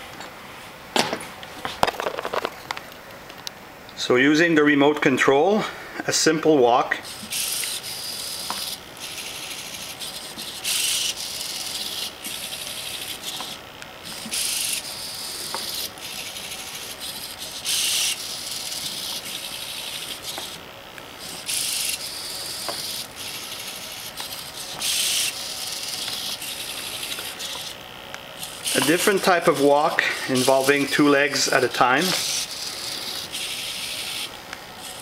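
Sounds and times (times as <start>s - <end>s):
servo motors whirring: 7.0s - 35.0s.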